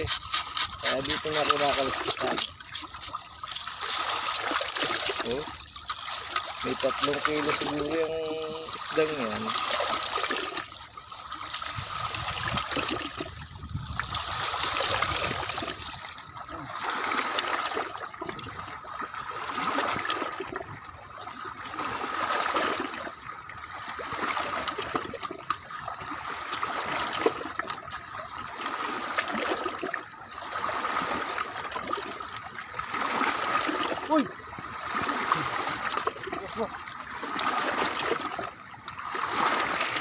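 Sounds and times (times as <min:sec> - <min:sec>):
knife scraping fish scales: 0:00.0 - 0:04.6
waves splashing against rocks: 0:00.0 - 0:18.6, 0:28.6 - 0:40.0.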